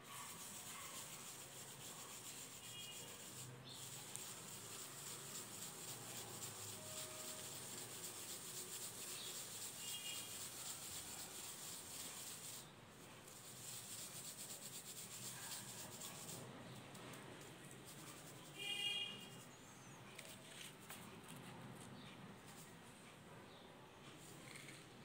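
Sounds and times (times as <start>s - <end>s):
gritty crackling scrape of powder: 0.1s - 16.4s, 17.7s - 19.5s.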